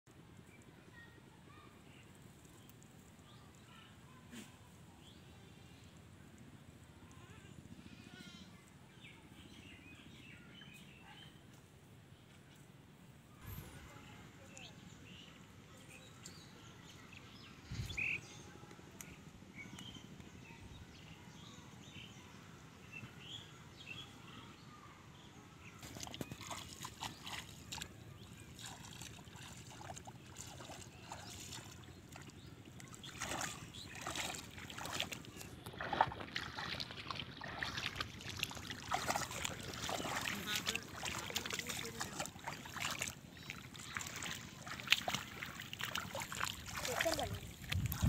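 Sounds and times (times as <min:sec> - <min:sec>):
splashing through shallow water: 0:25.8 - 0:48.0.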